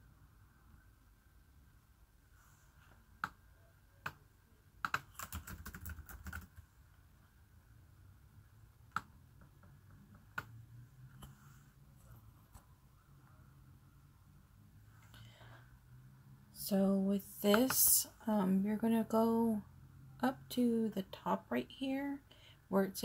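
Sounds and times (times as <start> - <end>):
laptop keyboard typing: 3.2 - 3.4, 4.8 - 6.7, 8.9 - 10.6.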